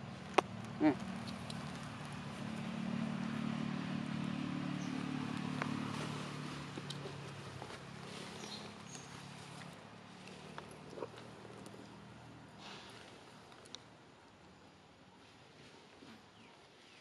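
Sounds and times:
motor engine humming: 0.0s - 12.6s.

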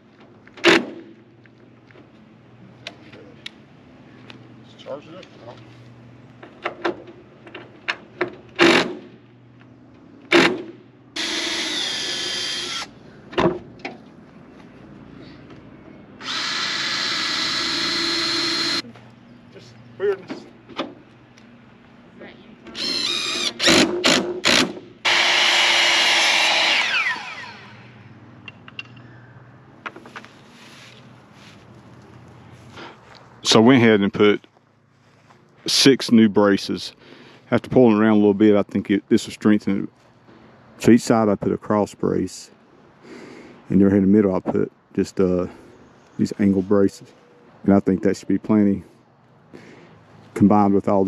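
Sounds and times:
cordless drill whine: 11.2s - 12.9s, 16.2s - 18.8s, 22.8s - 23.8s, 24.5s - 27.9s.

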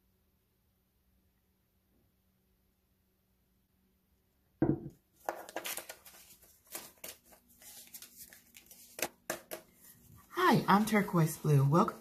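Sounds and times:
thump: 4.6s - 5.0s
banknotes rustling and crackling: 5.2s - 12.0s.

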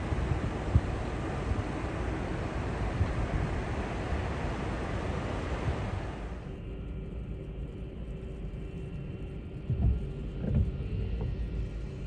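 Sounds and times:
jet engines rumbling: 0.0s - 6.6s.

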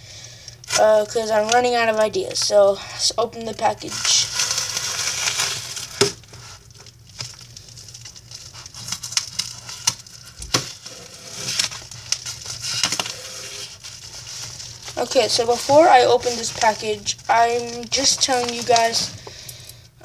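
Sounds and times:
paper envelope rustling: 3.6s - 19.3s.

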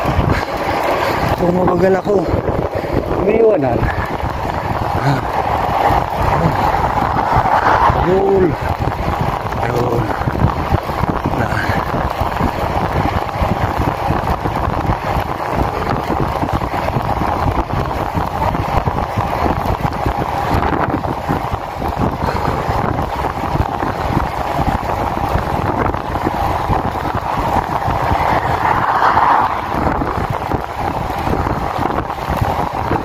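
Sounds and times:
wind rushing over microphone: 0.0s - 33.0s.

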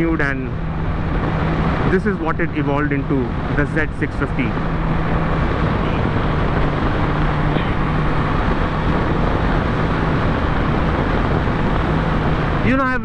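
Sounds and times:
loud rushing noise: 0.0s - 13.0s
low hum: 0.0s - 13.0s
motorcycle engine running: 4.4s - 12.8s.

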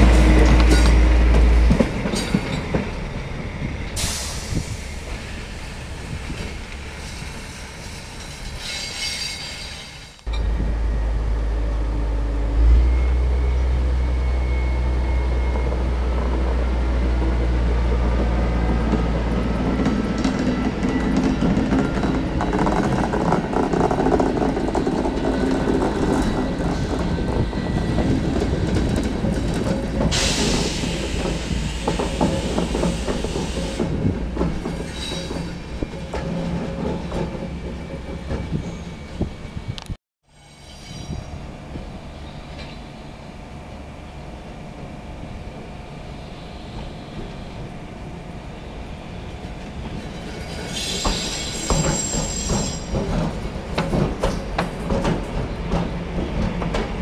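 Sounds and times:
diesel locomotive engine drone: 0.0s - 8.1s, 9.9s - 57.0s
wheel squeal: 7.9s - 10.1s, 40.3s - 41.3s, 50.0s - 53.3s
hiss: 30.1s - 33.8s
wheels clattering over rail joints: 49.5s - 57.0s.

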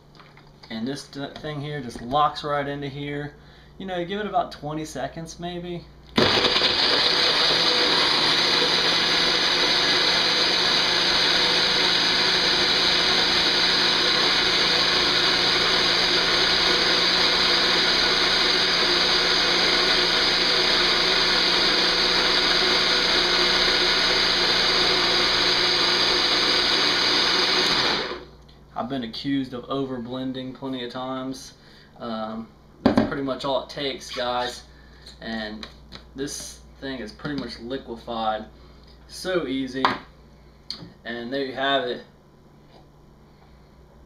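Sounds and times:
blender running: 6.2s - 28.3s.

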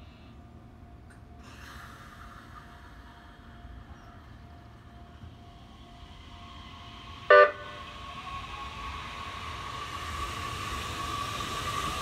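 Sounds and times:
electric train motor whine: 3.4s - 12.0s
train horn toot: 7.3s - 7.9s.

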